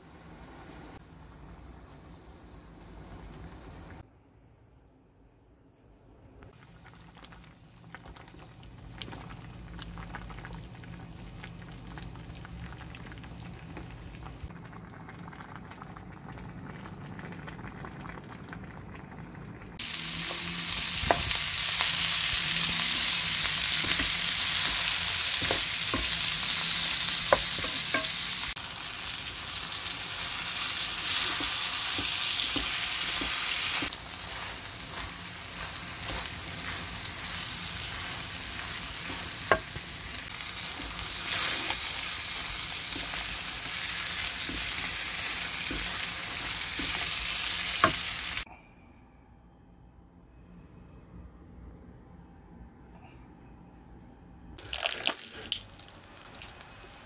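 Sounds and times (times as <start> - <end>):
food sizzling in a pan: 0.0 - 4.0, 19.8 - 48.5, 54.6 - 57.0.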